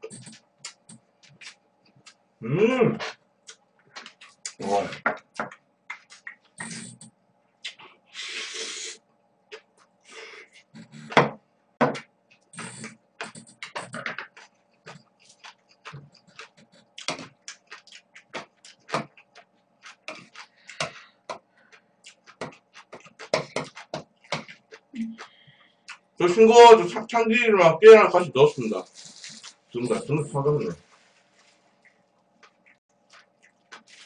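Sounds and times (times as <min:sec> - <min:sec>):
sharp mouth clicks: 0:00.0 - 0:02.2, 0:05.9 - 0:07.9, 0:12.3 - 0:21.0
faint steady hum: 0:00.0 - 0:34.0
wet chewing and mouth smacks: 0:00.1 - 0:02.2, 0:03.4 - 0:04.6, 0:05.2 - 0:07.9, 0:09.5 - 0:11.0, 0:12.0 - 0:26.2, 0:31.8 - 0:34.0.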